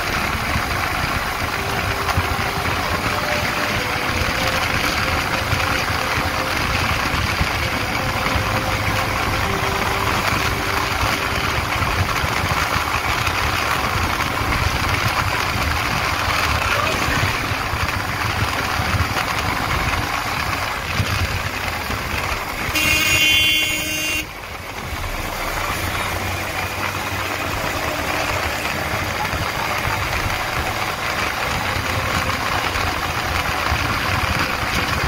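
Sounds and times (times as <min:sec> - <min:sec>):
motorcycle engine running: 0:00.0 - 0:35.0
road and wind noise: 0:00.0 - 0:35.0
vehicle horn: 0:01.0 - 0:15.0, 0:21.6 - 0:35.0.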